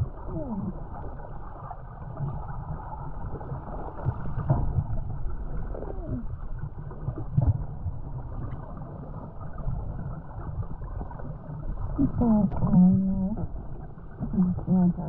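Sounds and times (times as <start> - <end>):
muffled water and wind rumble: 0.0 - 15.0
muffled voice: 14.2 - 15.0.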